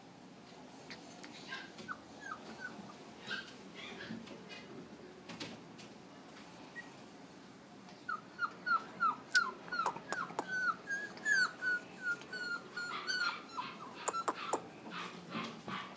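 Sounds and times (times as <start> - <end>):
puppy whimpering: 0.9 - 4.2, 8.0 - 14.7.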